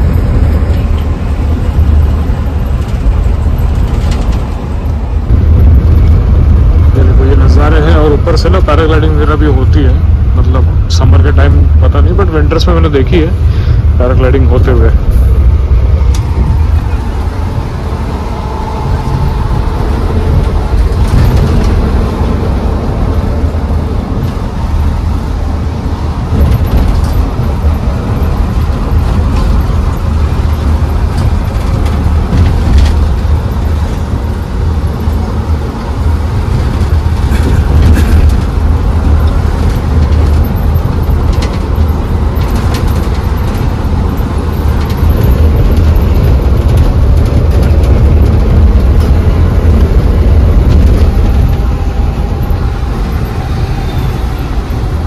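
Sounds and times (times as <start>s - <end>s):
faint rattles: 0.0s - 55.0s
road and tyre rumble: 0.0s - 55.0s.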